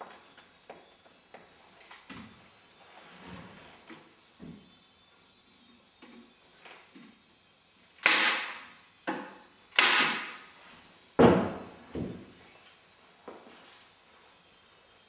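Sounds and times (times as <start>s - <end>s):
knocks on wooden frame: 11.2s - 12.3s.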